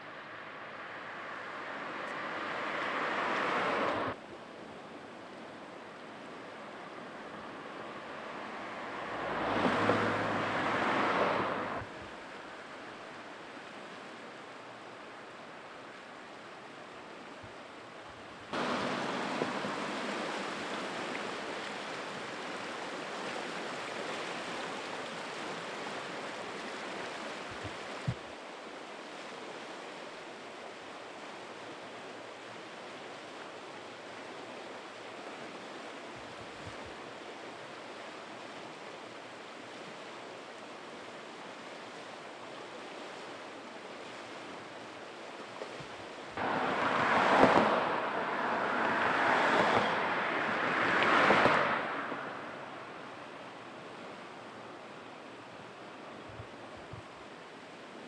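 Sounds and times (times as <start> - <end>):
road vehicles passing: 0.0 - 4.2, 6.1 - 13.0, 18.6 - 22.8, 46.4 - 55.5
fast-flowing floodwater rushing: 0.1 - 58.0.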